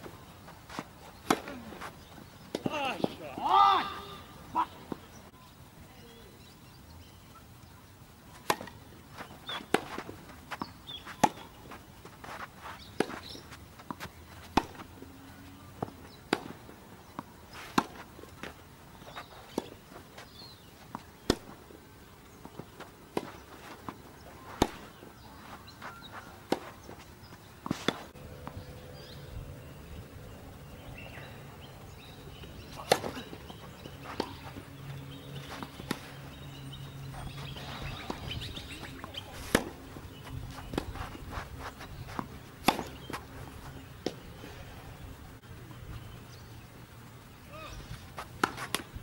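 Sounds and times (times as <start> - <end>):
tennis ball bouncing: 0.0 - 3.3, 8.4 - 15.0, 15.8 - 18.6, 22.4 - 27.0, 32.0 - 44.2, 48.2 - 49.0
tennis racket striking ball: 10.6 - 11.5, 32.8 - 33.2, 37.3 - 39.8, 40.5 - 43.2.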